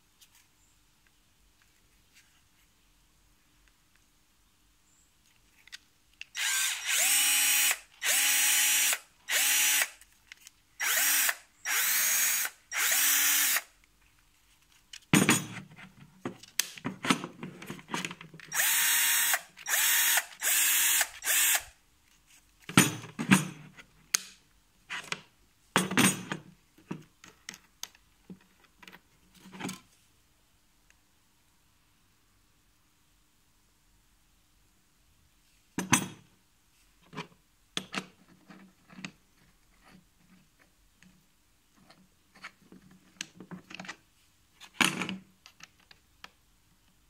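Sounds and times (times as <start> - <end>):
cordless drill whine: 6.4 - 10.0, 10.8 - 13.7, 18.5 - 21.7.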